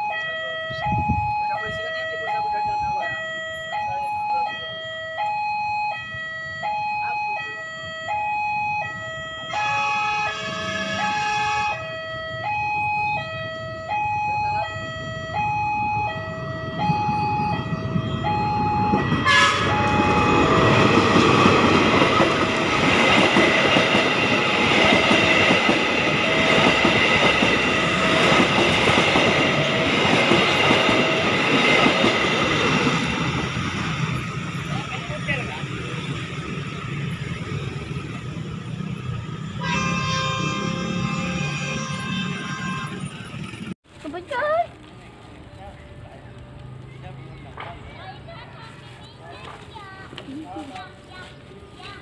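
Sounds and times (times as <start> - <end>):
level crossing alarm two tones: 0.0 - 34.6
train engine and wheel noise: 0.0 - 52.0
locomotive horn: 9.4 - 21.3, 39.4 - 43.7.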